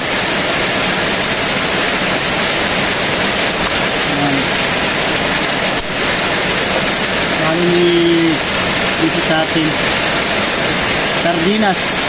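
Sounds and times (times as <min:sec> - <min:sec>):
heavy rain falling: 0:00.0 - 0:12.0.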